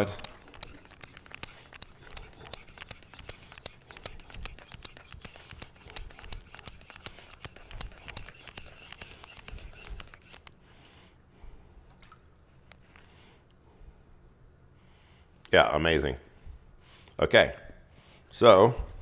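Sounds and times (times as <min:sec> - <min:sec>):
knife scraping on whetstone: 0:00.0 - 0:10.5.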